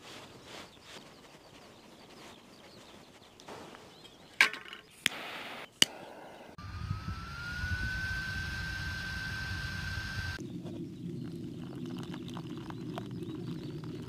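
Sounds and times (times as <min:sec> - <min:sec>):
small fan whine: 0:06.5 - 0:10.4
low rumble of flames: 0:06.6 - 0:14.0.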